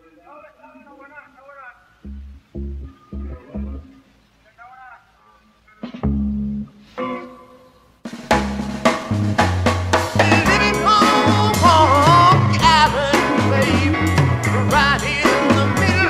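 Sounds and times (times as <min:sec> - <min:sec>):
low bass line: 0:02.1 - 0:03.9, 0:09.1 - 0:16.0
rock band playing: 0:05.8 - 0:07.5, 0:08.1 - 0:16.0
drums: 0:05.8 - 0:16.0.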